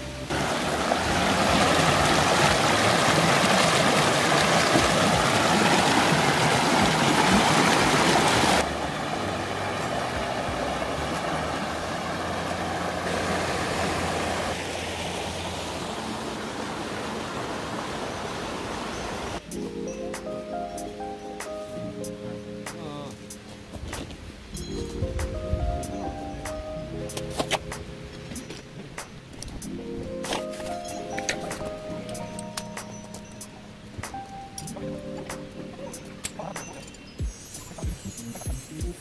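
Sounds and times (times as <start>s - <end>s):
stream rushing over rocks: 0.0s - 19.4s.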